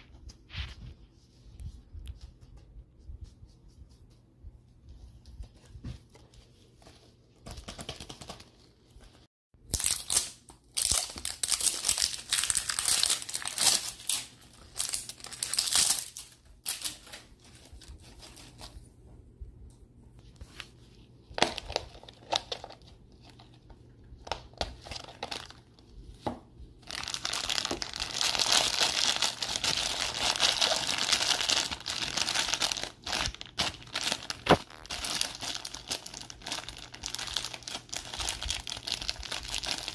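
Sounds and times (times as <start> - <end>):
plastic wrapping crinkling and tearing: 9.7 - 18.8, 21.4 - 25.9, 26.8 - 39.9.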